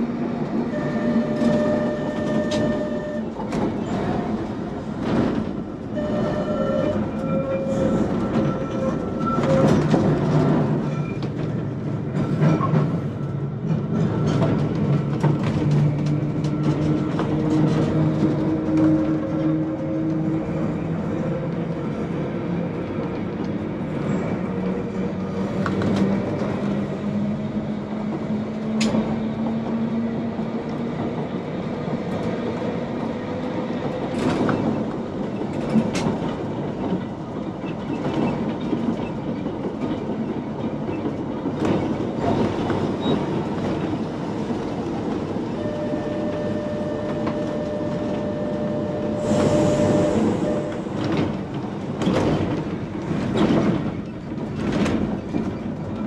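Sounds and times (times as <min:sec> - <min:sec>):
electric tram drive whine: 0:44.5 - 0:51.7.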